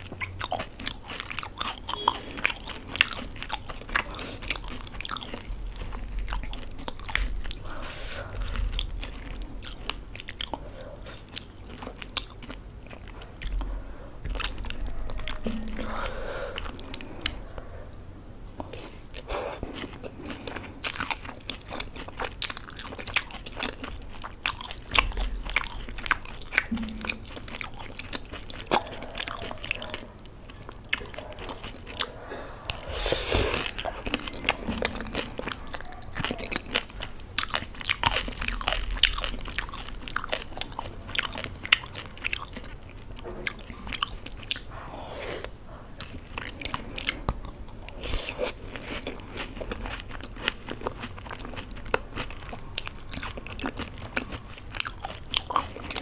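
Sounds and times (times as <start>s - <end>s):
chewing and crunching: 0.0s - 56.0s
wet mouth sounds: 22.3s - 30.0s.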